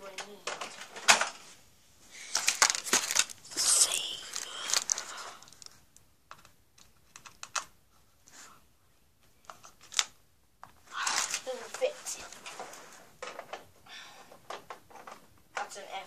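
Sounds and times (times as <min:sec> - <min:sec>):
clicks and scrapes of small parts: 0:02.3 - 0:07.7.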